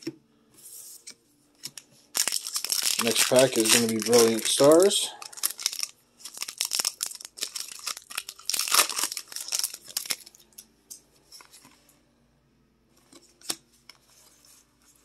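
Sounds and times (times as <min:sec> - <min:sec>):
cards rustling: 0:01.6 - 0:10.4
foil wrapper crinkling: 0:02.1 - 0:10.4.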